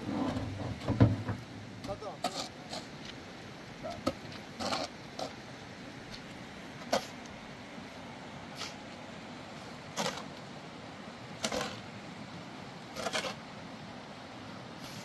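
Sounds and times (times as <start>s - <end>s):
shovel scraping sand and gravel: 1.9s - 3.0s, 4.0s - 5.4s, 6.8s - 7.2s, 8.5s - 8.9s, 9.6s - 10.4s, 11.3s - 11.9s, 12.8s - 13.6s, 14.8s - 15.0s.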